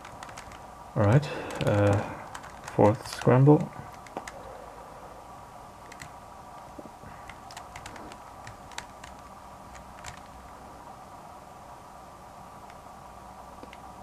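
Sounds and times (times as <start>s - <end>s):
faint steady hum: 0.0s - 14.0s
puzzle cube plastic clicks: 7.2s - 9.2s.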